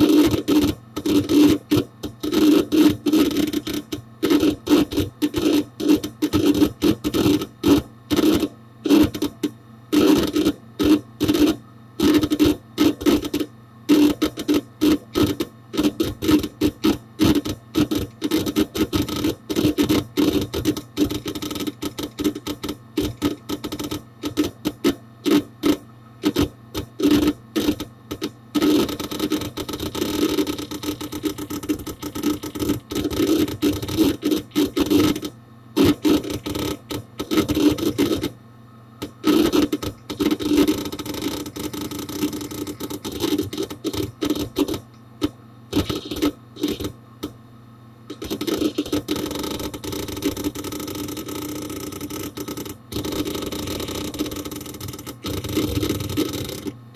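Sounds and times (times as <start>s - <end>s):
hard disk clicking: 0.0s - 38.4s, 39.0s - 47.4s, 48.1s - 56.9s.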